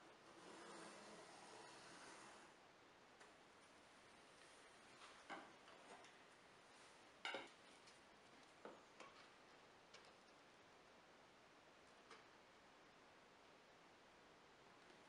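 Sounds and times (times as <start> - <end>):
faint taps and clicks of tools: 7.2 - 10.4, 11.8 - 12.4.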